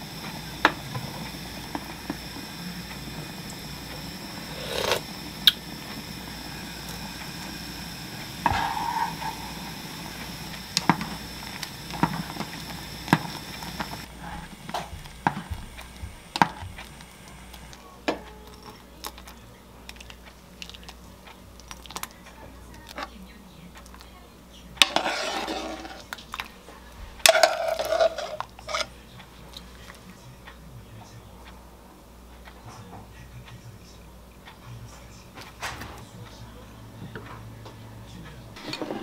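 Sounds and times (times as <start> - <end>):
wooden spoon knocking on pot: 11.9 - 16.9.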